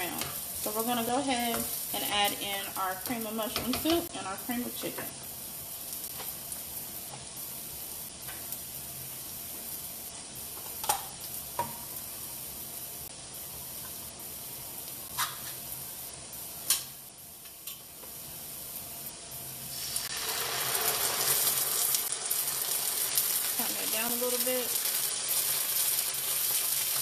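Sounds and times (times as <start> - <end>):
vegetables sizzling in a skillet: 0.0 - 27.0
soup poured into hot pan: 19.7 - 23.6.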